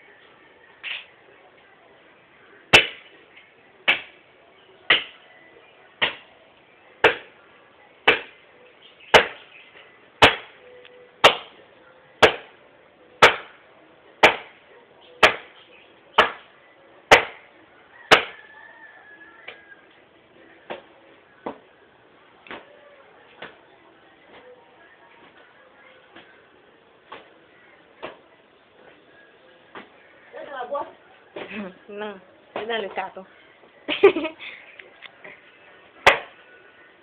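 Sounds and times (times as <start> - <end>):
wood being chopped: 7.0 - 7.3, 8.1 - 8.3, 9.1 - 9.4, 10.2 - 10.5, 11.2 - 11.5, 12.2 - 12.5, 13.2 - 13.6, 14.2 - 14.6, 15.2 - 15.5, 16.2 - 16.5, 17.1 - 17.4, 18.1 - 18.3, 36.0 - 36.3.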